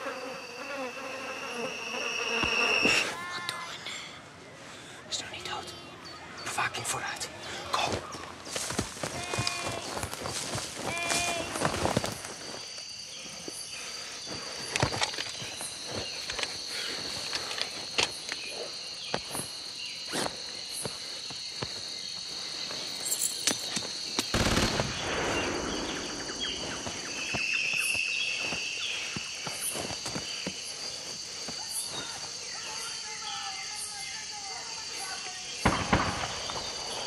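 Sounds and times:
insects chirring: 0.0 - 37.0
twigs cracking: 7.8 - 12.6
rustling on dry leaves and twigs: 7.8 - 32.6.

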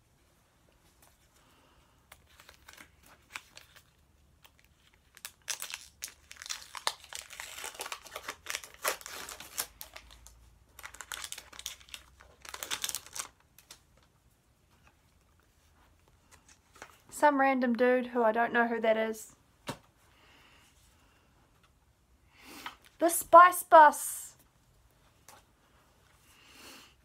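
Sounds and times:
plastic wrapper crinkling: 2.1 - 14.1.

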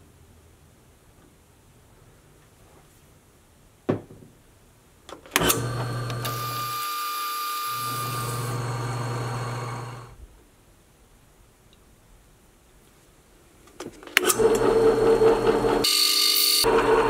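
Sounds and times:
drill high whine: 5.4 - 10.2, 14.3 - 17.0
drill press running: 5.4 - 10.2, 14.2 - 17.0.

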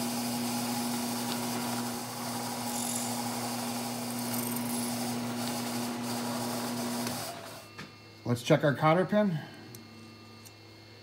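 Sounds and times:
milling machine spindle humming: 0.0 - 8.4.

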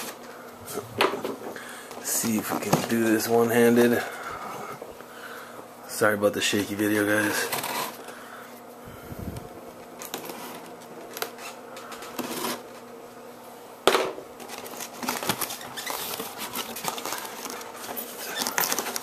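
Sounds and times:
cardboard flaps scraping and rustling: 2.0 - 3.5, 7.3 - 8.0, 10.0 - 12.9, 14.4 - 19.0
plastic wrapping crinkling: 14.4 - 19.0.

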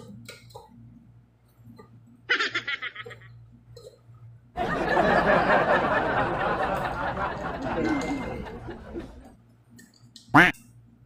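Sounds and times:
person laughing high-pitched: 2.3 - 3.3, 7.6 - 9.3.

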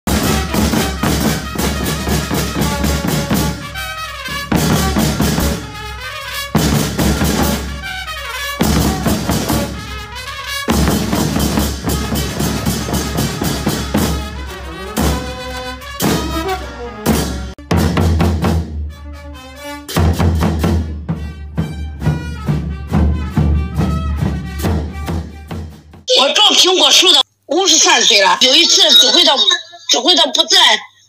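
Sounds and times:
band playing lively music: 0.0 - 18.8, 19.5 - 25.9
brass: 0.0 - 26.0
bass drum: 0.1 - 5.8, 6.6 - 8.0, 8.6 - 18.8, 20.0 - 26.1.

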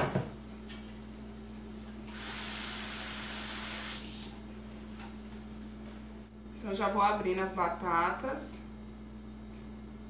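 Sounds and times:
kitchen tap running: 2.0 - 4.4.

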